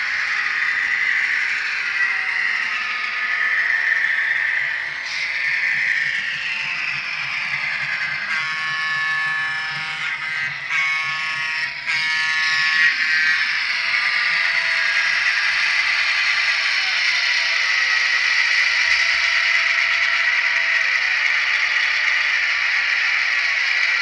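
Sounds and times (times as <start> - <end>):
model train engine sound: 0.0 - 24.0
train horn blasts: 8.3 - 12.8.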